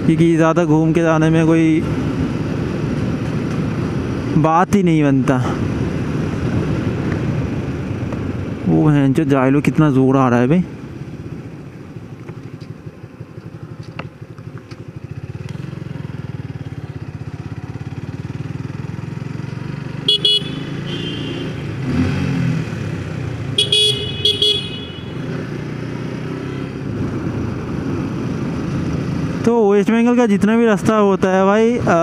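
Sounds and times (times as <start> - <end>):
motorcycle engine running: 5.6 - 29.7
vehicle horn honking: 20.0 - 21.8, 23.6 - 25.3.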